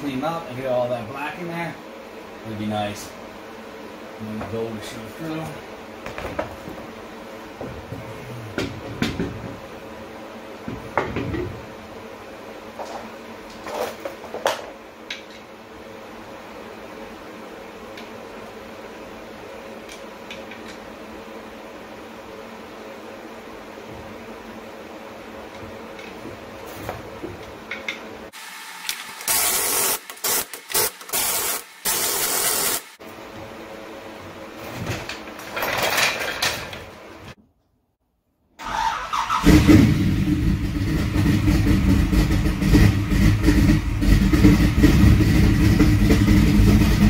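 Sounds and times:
impact wrench bursts: 29.0s - 33.0s.

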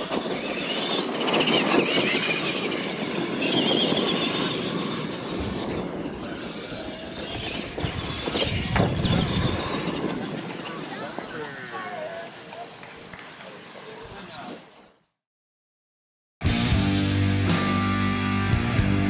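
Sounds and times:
electric motors whining: 0.0s - 12.7s
tyres on dirt: 0.0s - 15.0s.

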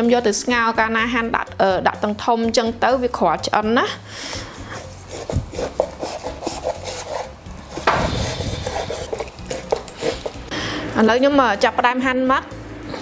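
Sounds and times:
cleaver slicing through meat: 4.7s - 10.5s
knocks on wooden cutting board: 7.8s - 8.1s.

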